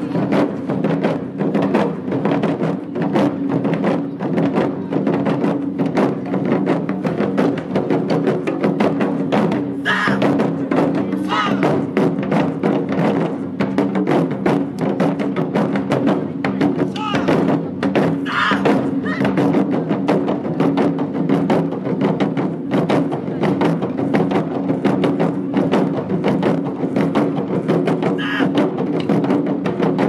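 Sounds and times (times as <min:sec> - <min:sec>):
drum ensemble playing: 0:00.0 - 0:30.0
people shouting: 0:09.8 - 0:10.3, 0:11.2 - 0:11.7, 0:16.9 - 0:17.4, 0:18.2 - 0:19.4, 0:28.2 - 0:28.6.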